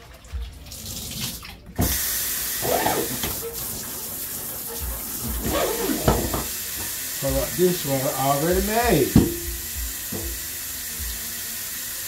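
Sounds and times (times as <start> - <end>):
faucet turned on: 0.0 - 12.0
water running into metal sink: 0.0 - 12.0
dishes knocking in sink: 4.8 - 6.9, 8.8 - 10.4.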